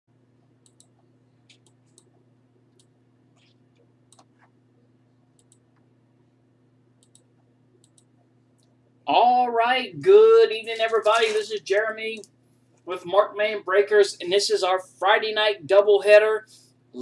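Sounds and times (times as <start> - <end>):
low electrical hum: 0.1 - 17.0
keyboard and mouse clicks: 0.6 - 4.5, 5.4 - 5.8, 7.0 - 8.1.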